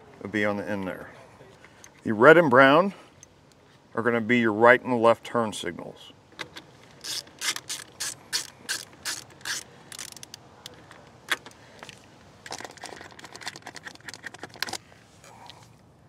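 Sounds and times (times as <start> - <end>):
nut driver clicking: 6.4 - 14.8.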